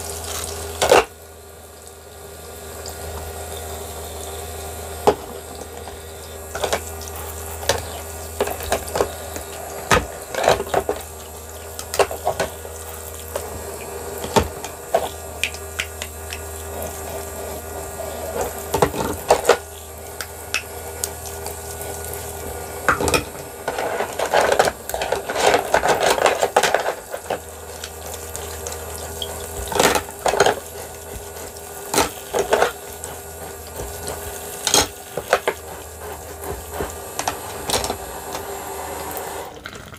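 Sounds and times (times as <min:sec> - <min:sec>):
toy water pump humming: 0:00.0 - 0:39.9
plastic toy dishes clattering: 0:22.9 - 0:35.6
faucet trickling water: 0:27.4 - 0:36.0.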